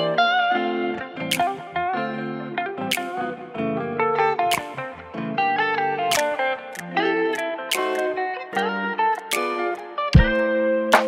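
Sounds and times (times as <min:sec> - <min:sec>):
plucked guitar music: 0:00.0 - 0:11.0
sharp percussion hits: 0:10.2 - 0:11.0.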